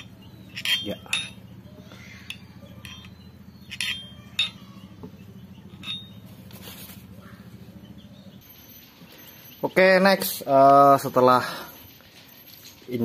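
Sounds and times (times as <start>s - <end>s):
screwdriver clinking on metal: 0.0s - 1.5s, 2.2s - 4.7s, 5.7s - 6.2s.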